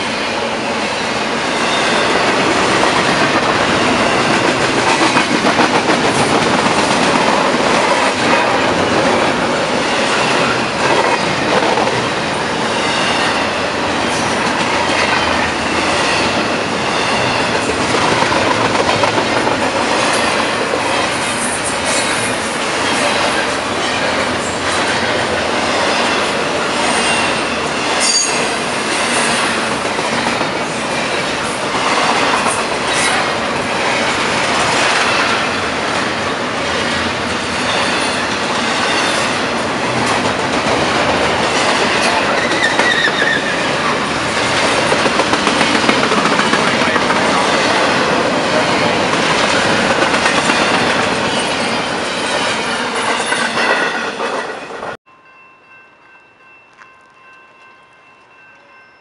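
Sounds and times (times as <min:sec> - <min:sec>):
train wheels rushing on rail: 0:00.0 - 0:55.0
high wheel squeal: 0:26.9 - 0:29.6, 0:42.2 - 0:44.0.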